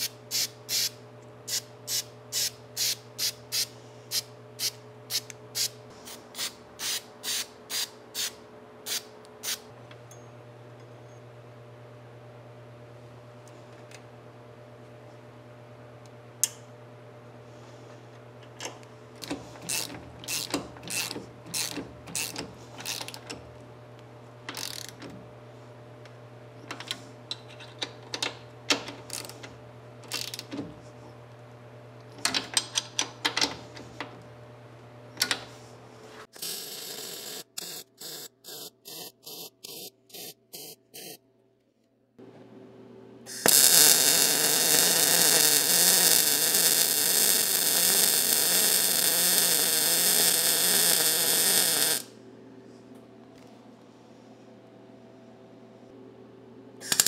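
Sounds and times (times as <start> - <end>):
loud steady welding noise: 0.0 - 3.7, 4.6 - 9.7, 43.3 - 52.1.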